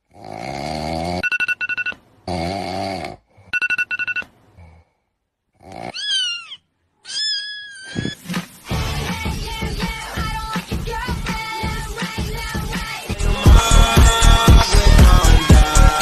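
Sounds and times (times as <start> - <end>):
digital alarm clock beeping: 1.2 - 2.0, 3.5 - 4.2
cat meowing: 5.9 - 8.2
music: 8.4 - 16.0.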